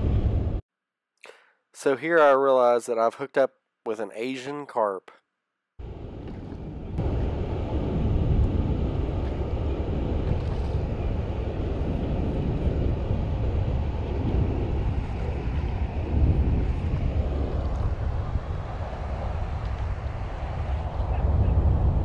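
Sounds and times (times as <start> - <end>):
low rushing noise: 0.0 - 0.6, 5.8 - 22.0.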